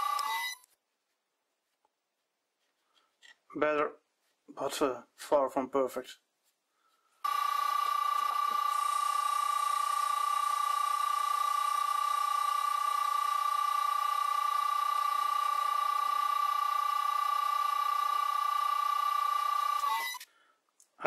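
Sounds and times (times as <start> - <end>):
lathe motor whine: 7.3 - 20.2.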